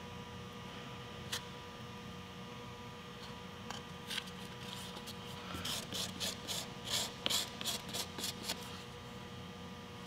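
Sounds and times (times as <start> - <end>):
stick scraping filler: 4.1 - 8.8.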